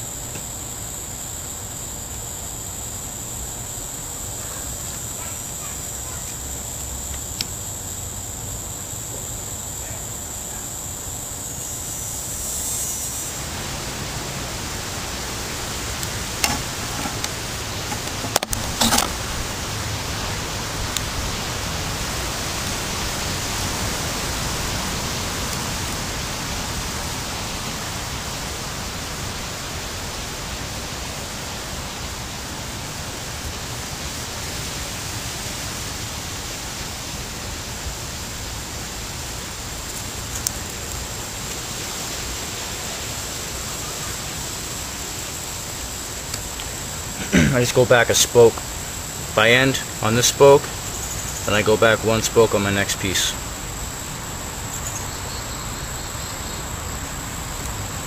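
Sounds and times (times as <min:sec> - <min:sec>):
short clicks: 0:16.0 - 0:19.2.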